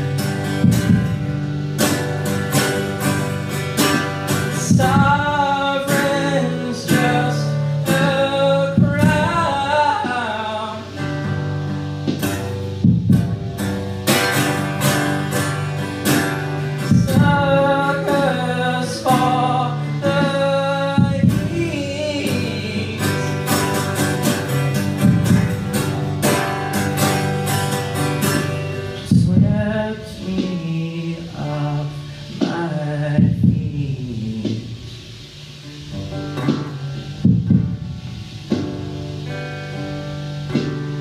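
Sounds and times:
acoustic guitar strumming: 0.0 - 41.0
drum track: 0.0 - 41.0
man singing: 4.3 - 11.3, 16.6 - 26.2, 28.3 - 34.9.

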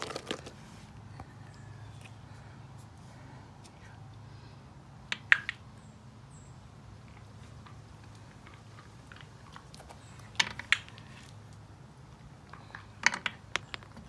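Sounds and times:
dog crunching dry food: 0.0 - 0.6.

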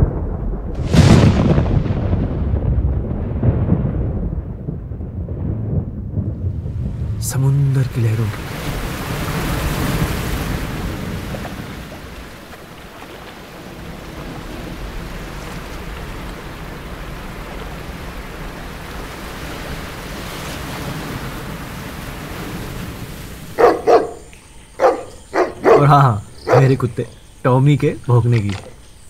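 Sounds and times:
sea waves washing onto beach: 6.5 - 26.9.

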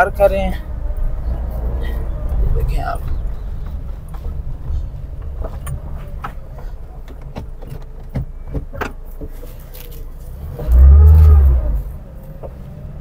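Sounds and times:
van engine running at low speed: 0.0 - 13.0
tyres crunching on gravel: 9.3 - 11.9.

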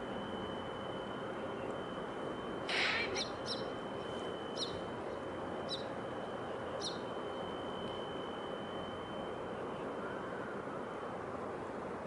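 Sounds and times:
faint high steady tone: 0.0 - 12.0
outdoor ambience hiss: 0.0 - 12.0
small bird chirping: 2.7 - 3.8, 4.5 - 4.9, 5.6 - 7.1.

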